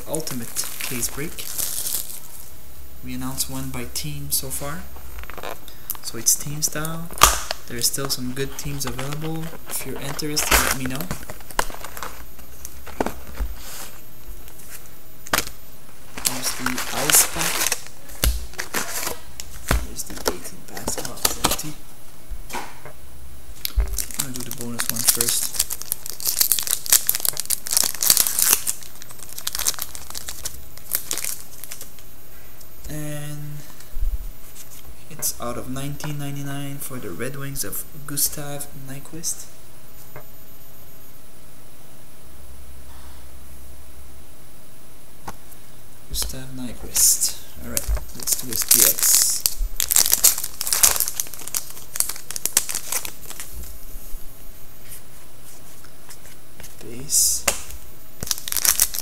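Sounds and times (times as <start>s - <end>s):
foil wrapper tearing and crinkling: 0.3s - 2.4s, 8.8s - 13.1s, 16.2s - 21.7s, 23.6s - 32.0s, 47.7s - 53.5s, 57.4s - 59.0s.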